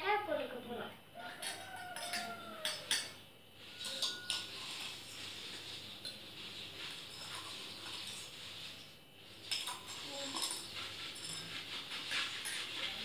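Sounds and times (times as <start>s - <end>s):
metal spoon clinking steel tumbler: 1.2s - 5.0s, 9.5s - 11.6s
liquid swishing: 3.6s - 13.0s.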